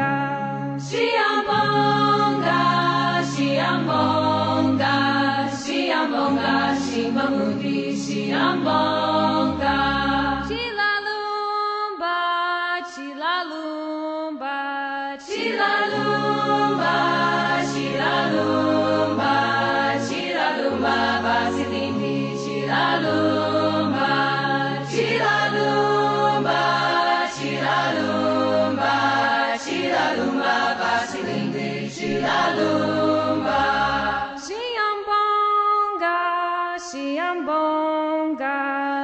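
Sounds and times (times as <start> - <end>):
choir singing: 0.8 - 10.6, 15.2 - 34.5
low voices holding long notes: 15.3 - 34.2.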